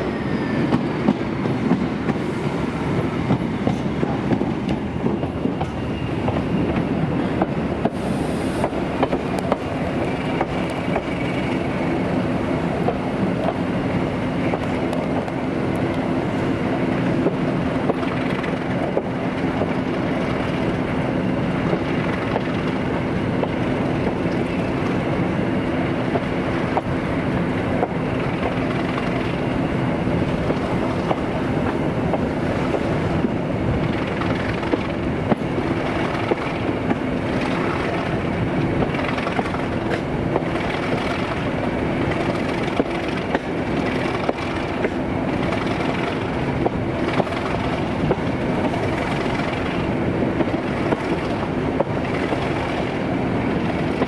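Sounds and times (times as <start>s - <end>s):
diesel train engine drone: 0.0s - 54.0s
wheels clicking over rail joints: 30.2s - 54.0s.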